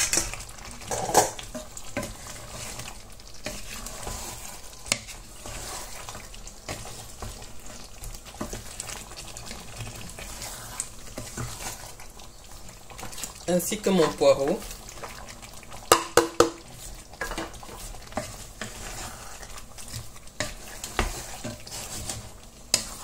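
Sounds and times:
sauce sizzling in a pot: 0.0 - 23.0
wooden spatula knocking on pot: 15.9 - 17.5.

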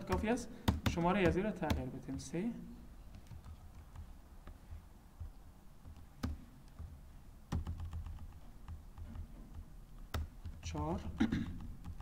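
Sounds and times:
computer keyboard key presses: 0.0 - 1.8, 3.1 - 4.6, 5.8 - 6.9, 7.5 - 12.0.

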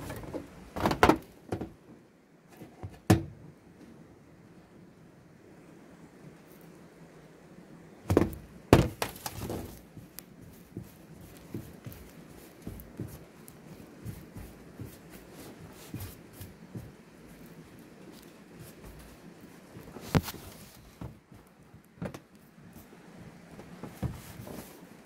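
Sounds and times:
knocks on sheet-metal roofing: 8.1 - 9.2
gloved hands tapping and rubbing: 8.1 - 22.4.

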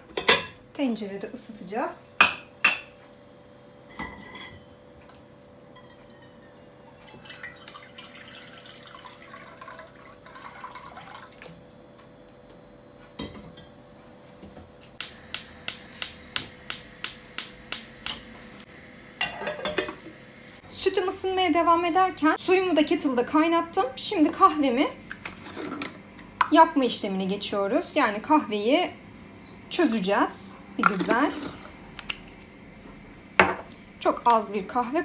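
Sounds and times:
milk pouring into a saucepan: 5.8 - 11.6
gas hob igniter clicking: 15.0 - 18.4.

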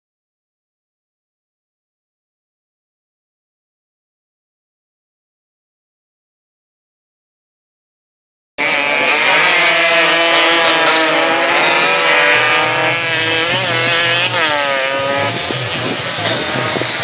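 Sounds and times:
racing motorcycle engines: 8.6 - 17.0.

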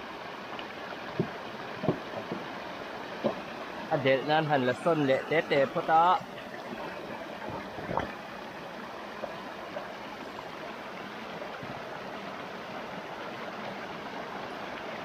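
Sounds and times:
stream rushing over rocks: 0.0 - 15.0
water splash: 6.6 - 8.2.

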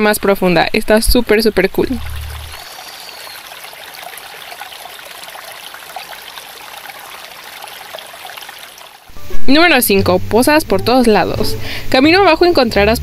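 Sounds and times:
water trickling down rock: 1.6 - 9.1.

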